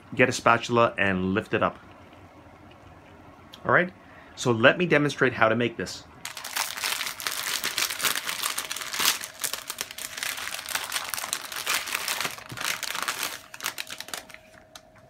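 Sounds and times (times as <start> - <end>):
plastic packaging crinkling: 6.2 - 15.0.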